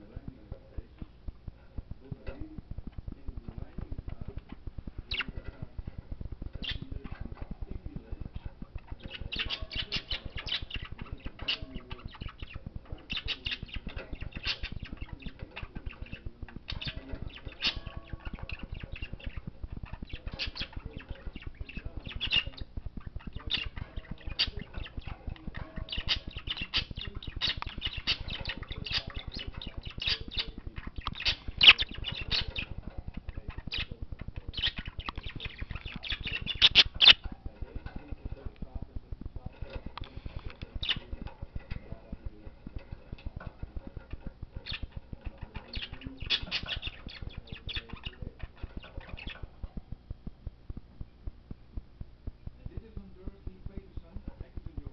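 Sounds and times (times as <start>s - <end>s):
budgerigar chattering: 5.1s - 5.4s, 6.6s - 7.3s, 8.2s - 38.6s, 39.5s - 49.7s.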